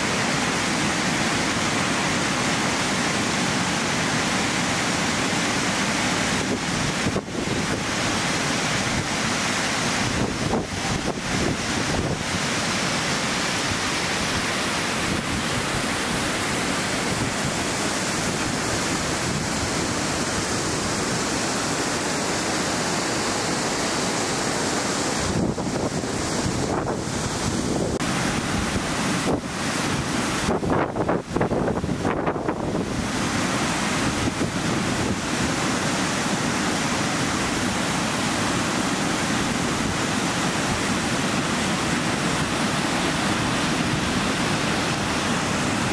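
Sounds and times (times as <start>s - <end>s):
waterfall rushing: 0.0s - 45.9s
wind on microphone: 6.4s - 8.1s, 10.0s - 12.6s, 13.6s - 21.4s, 25.1s - 33.4s.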